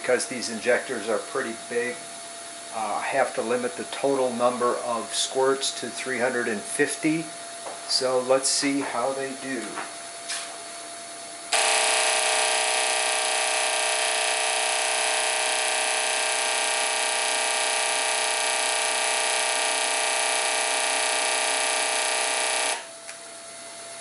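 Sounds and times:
fuel injectors buzzing: 0:11.5 - 0:23.1.

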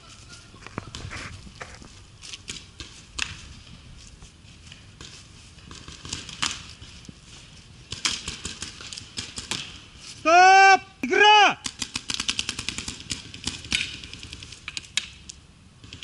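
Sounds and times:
paintball markers firing: 0:05.7 - 0:06.7, 0:07.9 - 0:09.8, 0:11.6 - 0:16.0.

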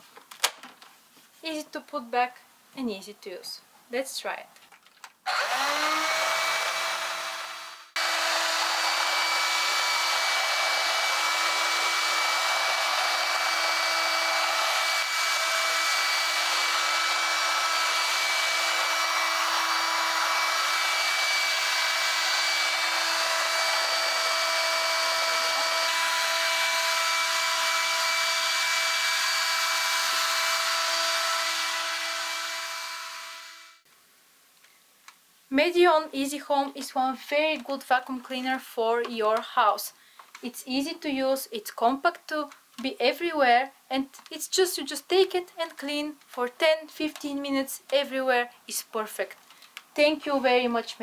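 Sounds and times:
vacuum cleaner motor whine: 0:05.3 - 0:33.8.

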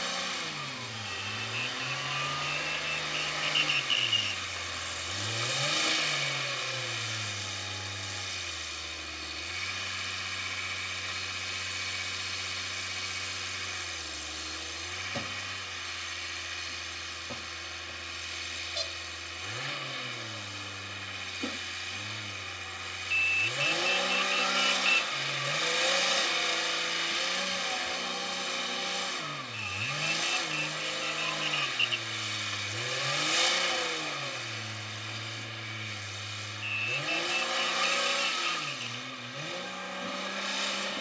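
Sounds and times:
diesel engine revving: 0:00.0 - 0:41.0
reverse alarm beeping: 0:00.5 - 0:04.5, 0:23.0 - 0:25.4, 0:28.0 - 0:32.1, 0:36.6 - 0:38.8.

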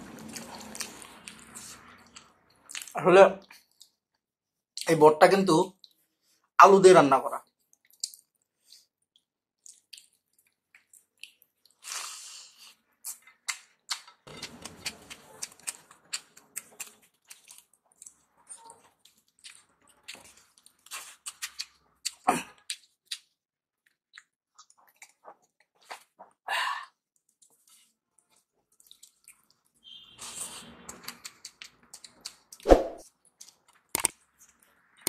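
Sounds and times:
mouth smacking while chewing: 0:07.7 - 0:26.4, 0:27.2 - 0:32.6.

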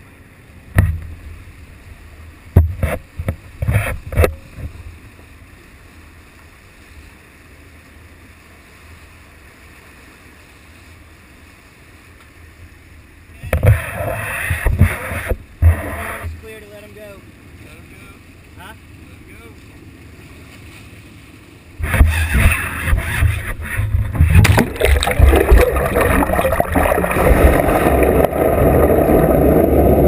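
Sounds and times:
boat engine rumble: 0:00.0 - 0:30.0
fish splashing in water: 0:21.8 - 0:30.0.

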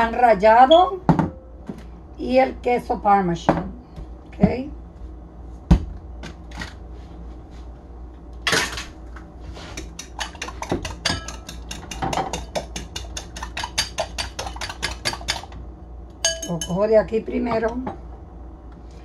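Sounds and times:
utensil scraping dish: 0:09.5 - 0:15.4
utensil tapping dishes: 0:09.8 - 0:15.5, 0:16.2 - 0:16.8.

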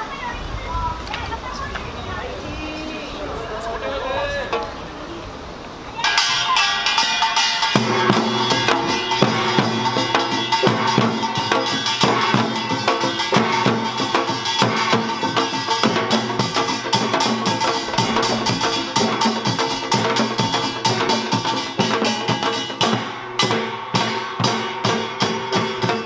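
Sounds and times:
large gong ringing: 0:06.0 - 0:25.7
drums beating fast rhythm: 0:06.0 - 0:26.0
small gongs clanging: 0:06.0 - 0:26.0.

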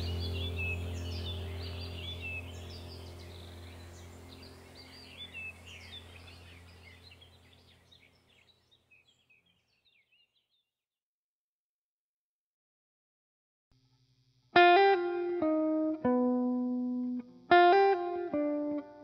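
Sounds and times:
low steady hum: 0:00.0 - 0:09.3
birds chirping and twittering: 0:00.0 - 0:10.7.

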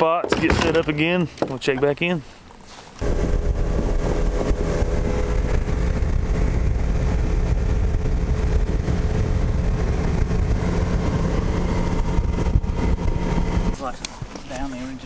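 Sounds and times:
wind rumble on microphone: 0:03.0 - 0:14.4
outboard motor running: 0:03.0 - 0:14.6.

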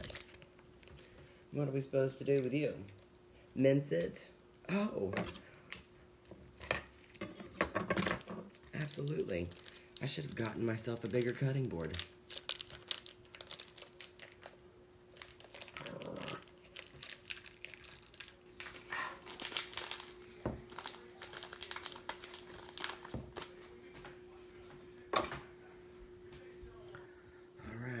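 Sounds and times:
garlic skin crinkling: 0:00.0 - 0:01.3, 0:08.4 - 0:23.5
faint steady hum: 0:00.0 - 0:28.0.

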